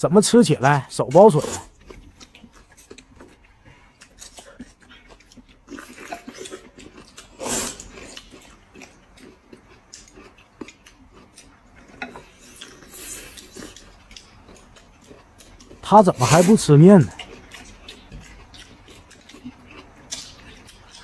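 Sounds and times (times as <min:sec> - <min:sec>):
food chewed with wet clicks: 0:01.7 - 0:16.0, 0:16.6 - 0:21.0
noodles slurped: 0:03.7 - 0:08.4.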